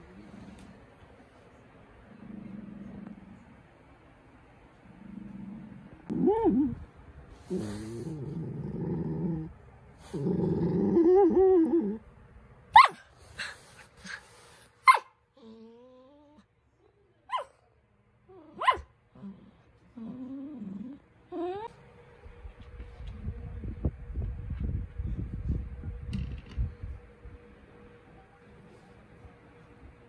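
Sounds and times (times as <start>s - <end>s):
dog growling and grumbling: 2.0s - 3.6s, 4.8s - 12.0s, 15.4s - 16.4s, 18.3s - 21.7s
dog whining: 6.1s - 6.8s, 20.0s - 21.7s
dog yipping: 12.8s - 13.0s, 14.8s - 15.2s, 17.3s - 17.5s, 18.5s - 18.9s.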